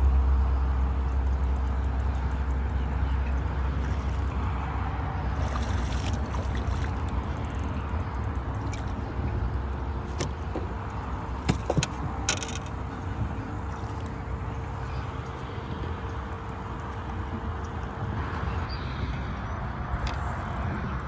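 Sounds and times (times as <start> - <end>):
steady low rumble: 0.0 - 21.0
fish splashing at water surface: 5.2 - 7.6
knocks on boat: 11.4 - 12.6.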